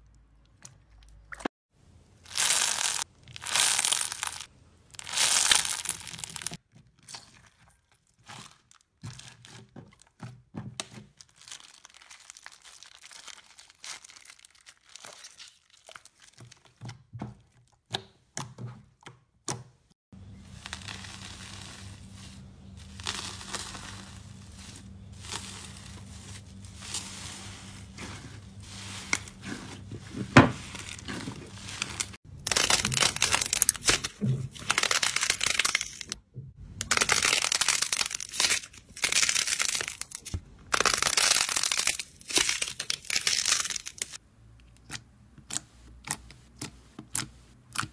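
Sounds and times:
slime crackling and popping: 0:02.3 - 0:07.3, 0:20.4 - 0:28.0, 0:30.1 - 0:36.2, 0:36.8 - 0:44.2.

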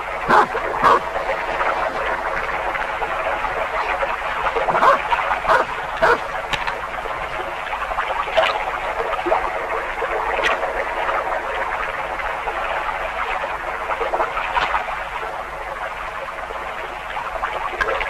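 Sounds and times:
frogs croaking: 0:00.0 - 0:18.0
dog barking: 0:00.3 - 0:01.0, 0:04.7 - 0:06.3.

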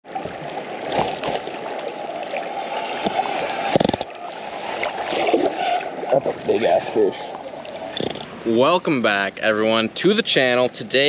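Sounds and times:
river water rushing: 0:00.1 - 0:08.7.

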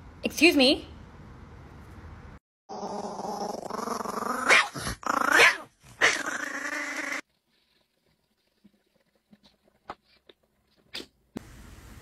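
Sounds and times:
cat growling and yowling: 0:02.7 - 0:07.2.

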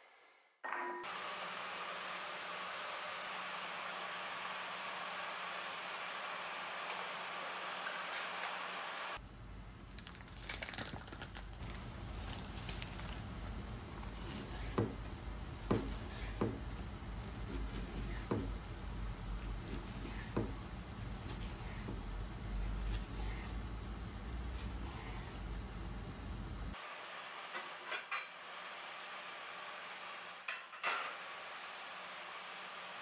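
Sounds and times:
paper towel crinkling: 0:09.9 - 0:14.5.

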